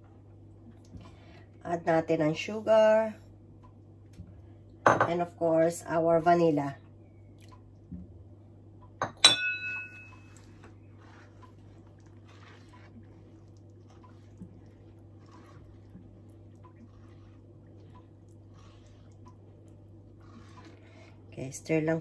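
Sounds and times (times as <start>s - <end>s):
steady low hum: 0.0s - 22.0s
spatula stirring in a pan: 9.8s - 22.0s.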